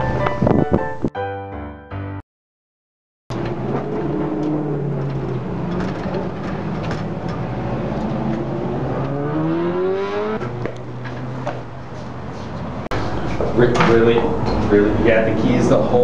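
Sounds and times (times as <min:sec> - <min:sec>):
vehicle engine accelerating: 0:03.3 - 0:16.0.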